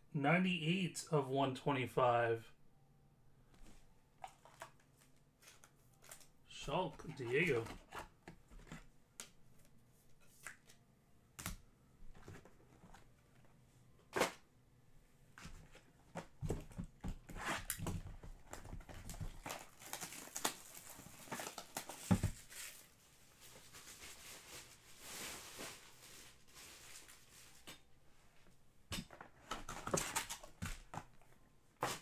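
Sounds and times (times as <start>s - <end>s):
plastic rustling and crinkling: 3.6s - 8.9s, 15.4s - 27.9s.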